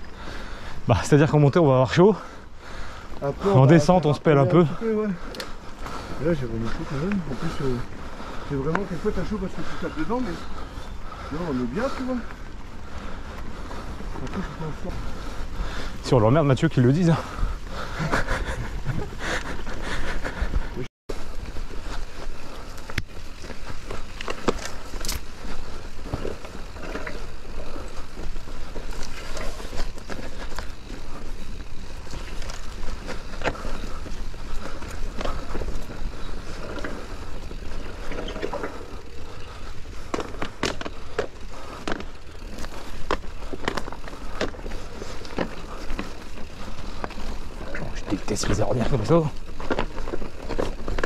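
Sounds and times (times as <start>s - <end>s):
bike clicking and rattling: 0.0s - 51.0s
bike tyres rumbling on rough track: 0.0s - 51.0s.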